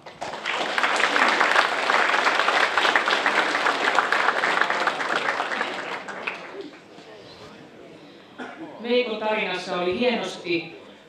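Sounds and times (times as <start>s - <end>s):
audience applauding: 0.0s - 6.9s.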